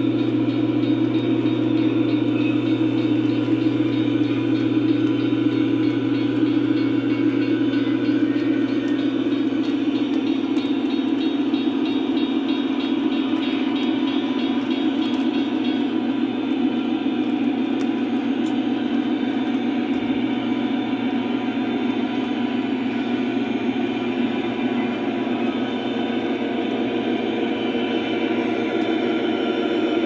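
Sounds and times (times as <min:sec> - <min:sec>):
model train rumbling: 0:00.0 - 0:30.0.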